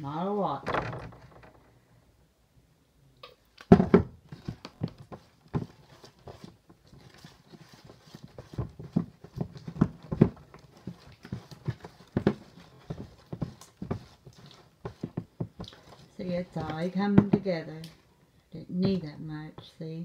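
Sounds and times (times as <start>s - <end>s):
slime stirred in plastic tub: 4.2s - 18.1s.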